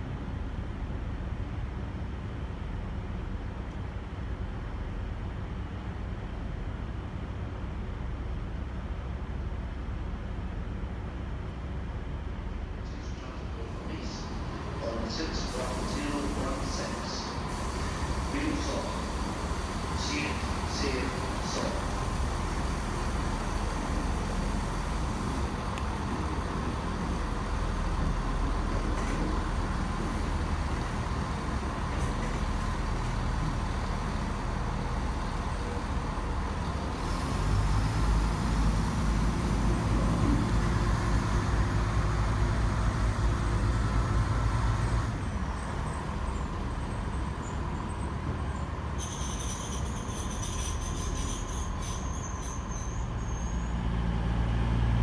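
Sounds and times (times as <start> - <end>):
diesel train engine drone: 0.0 - 55.0
thin high squeal: 49.0 - 53.8.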